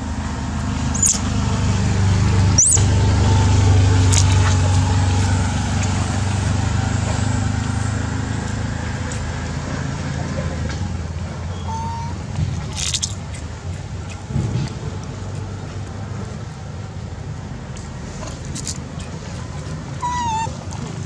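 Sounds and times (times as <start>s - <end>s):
vehicle engine humming: 0.0s - 21.0s
high rising chirps: 2.6s - 2.9s.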